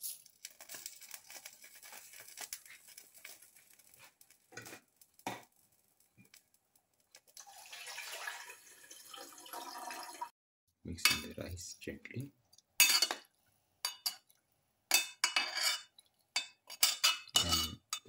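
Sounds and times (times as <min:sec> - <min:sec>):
water boiling in a pot: 0:00.0 - 0:10.3.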